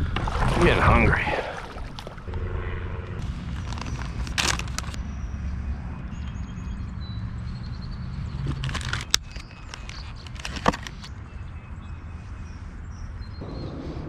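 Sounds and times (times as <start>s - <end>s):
low rumble: 2.1s - 4.0s, 13.4s - 14.0s.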